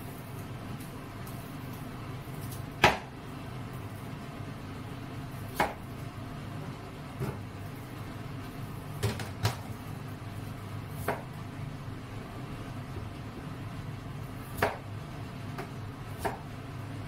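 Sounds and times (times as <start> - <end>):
steady low hum: 0.0 - 17.0
knife chopping on cutting board: 2.8 - 3.1, 5.5 - 5.8, 11.0 - 11.3, 14.5 - 14.9, 15.6 - 16.5.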